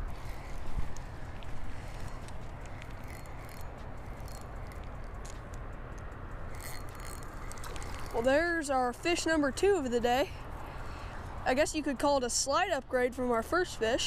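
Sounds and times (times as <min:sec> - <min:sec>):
rod and reel clicks: 0:00.0 - 0:08.6
low outdoor rumble: 0:00.0 - 0:14.0.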